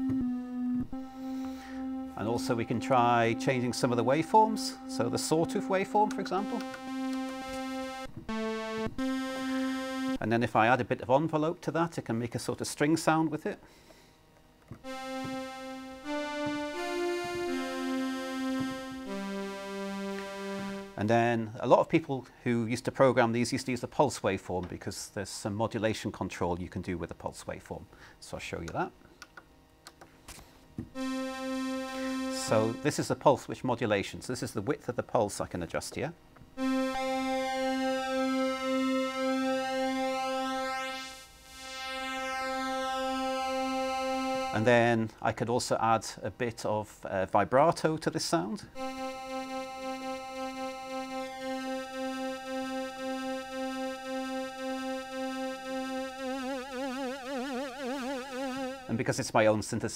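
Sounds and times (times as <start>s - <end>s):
synthesiser string-like chords: 0.0s - 10.4s, 14.8s - 21.1s, 31.0s - 33.2s, 36.6s - 44.8s, 48.7s - 59.2s.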